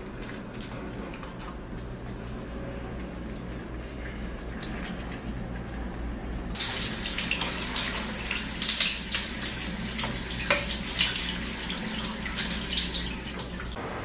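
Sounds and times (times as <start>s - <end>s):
water spraying from shower head: 6.6s - 13.8s.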